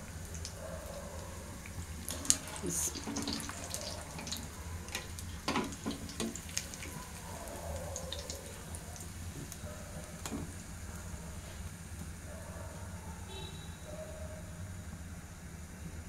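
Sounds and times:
hot oil sizzling: 0.0 - 12.3.

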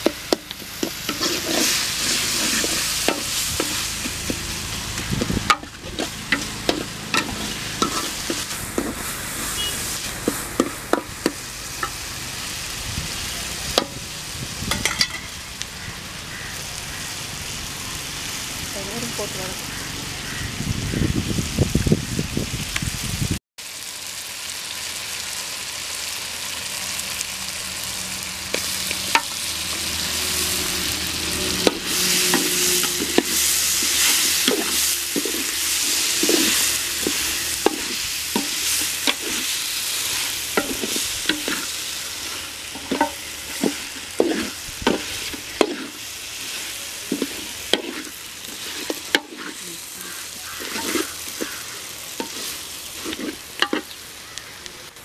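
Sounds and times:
food sizzling in a pot: 0.0 - 55.0
ladle scraping a metal pot: 0.7 - 9.0, 31.4 - 46.0, 50.4 - 54.0.

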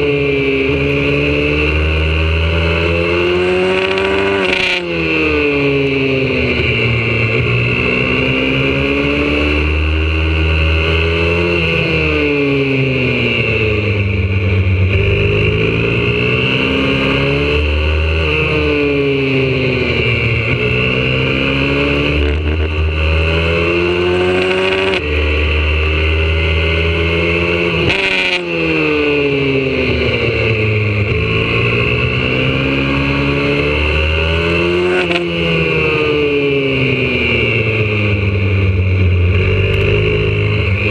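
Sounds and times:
motorbike engine revving: 0.0 - 40.9.

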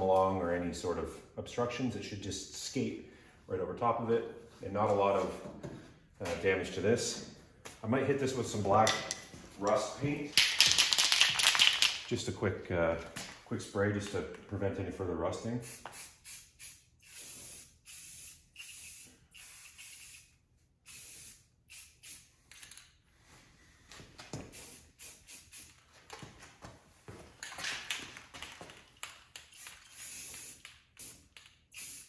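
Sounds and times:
spray paint can spraying: 15.6 - 22.3, 24.5 - 25.8, 29.4 - 32.0.

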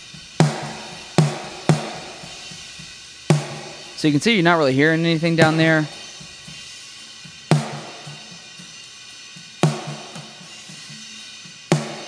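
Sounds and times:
snare drum hits: 0.4 - 2.6, 3.3 - 6.3, 7.5 - 8.4, 9.6 - 10.5, 11.7 - 12.0
faint drum kit spill: 0.4 - 6.7.

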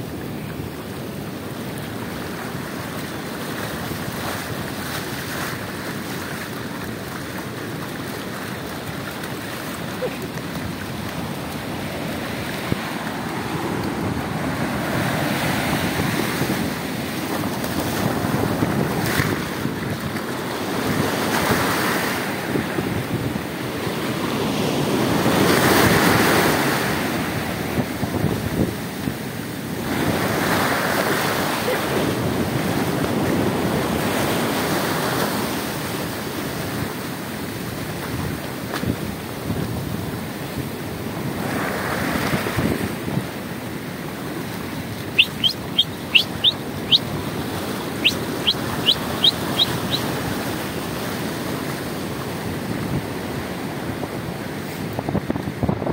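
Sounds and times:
surf washing up the beach: 0.0 - 55.9
wind buffeting the microphone: 10.2 - 35.4, 37.5 - 55.9.

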